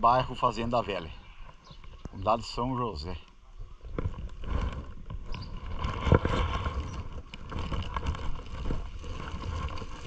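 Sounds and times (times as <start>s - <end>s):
wind rumbling on microphone: 3.5s - 10.0s.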